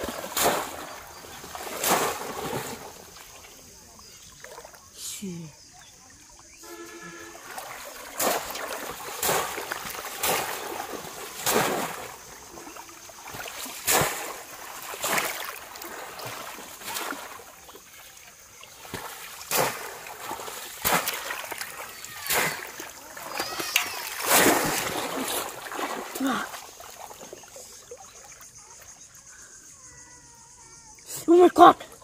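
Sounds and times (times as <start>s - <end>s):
trap splashing into water: 0.0s - 3.6s, 6.6s - 17.8s, 18.7s - 27.5s
water streaming out: 0.0s - 28.8s.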